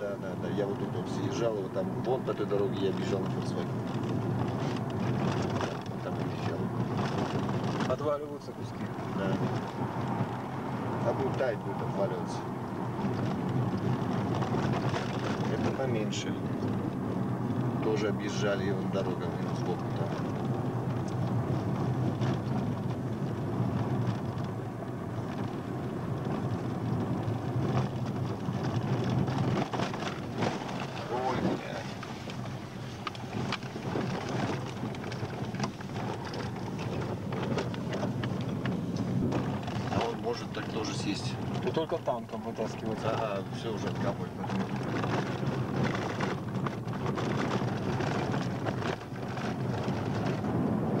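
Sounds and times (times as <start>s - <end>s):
car engine and tyre hum: 0.0s - 51.0s
car knocks and rattles: 0.0s - 51.0s
wind buffeting microphone: 19.3s - 42.0s, 42.8s - 51.0s.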